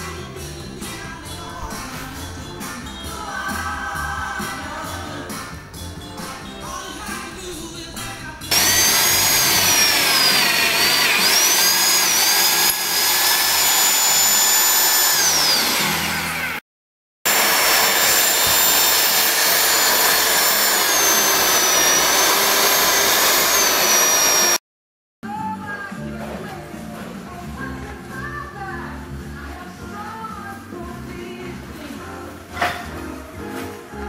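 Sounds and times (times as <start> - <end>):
soft music: 0.0 - 9.6, 25.3 - 34.0
drill boring through steel: 8.5 - 16.6, 17.3 - 24.6.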